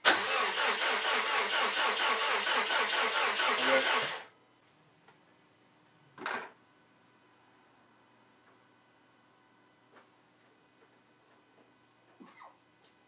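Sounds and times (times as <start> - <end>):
starter motor cranking engine: 0.0 - 4.3.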